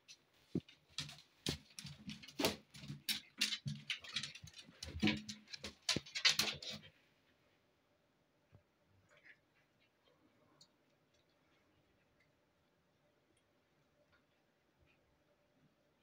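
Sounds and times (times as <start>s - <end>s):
cat claws on laminate floor: 0.6s - 6.9s.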